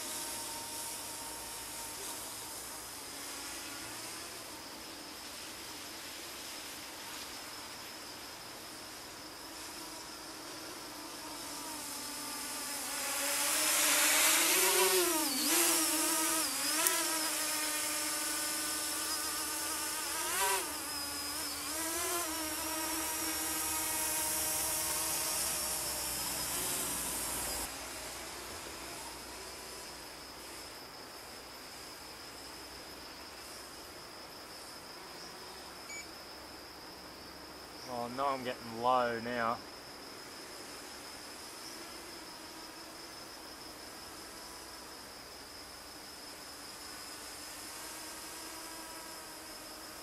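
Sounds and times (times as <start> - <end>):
drone propellers buzzing: 11.4 - 29.2.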